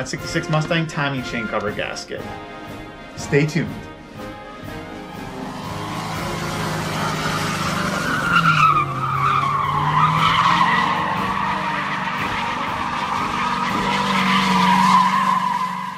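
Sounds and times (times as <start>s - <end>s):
car engine running: 4.4s - 15.8s
car tyres squealing: 4.5s - 15.9s.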